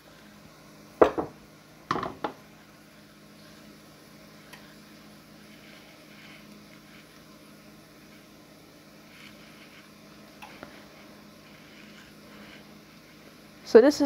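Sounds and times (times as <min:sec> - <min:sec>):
faint steady hum: 0:00.0 - 0:14.0
pan knocking on glass stove: 0:01.0 - 0:02.4.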